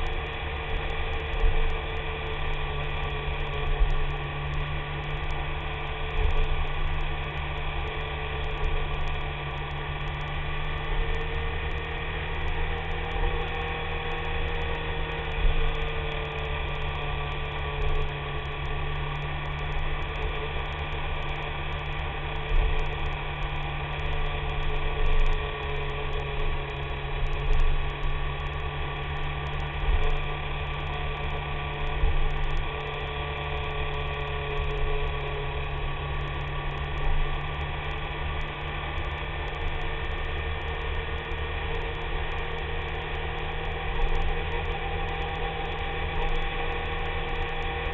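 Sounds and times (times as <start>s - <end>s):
motorcycle engine droning: 0.0s - 47.9s
wind and road noise: 0.0s - 47.9s.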